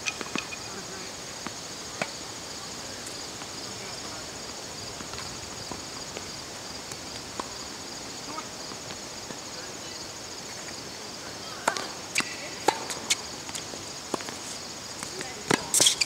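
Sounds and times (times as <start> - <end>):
insects chorus: 0.0 - 16.0
tennis ball struck by racket: 11.6 - 14.4.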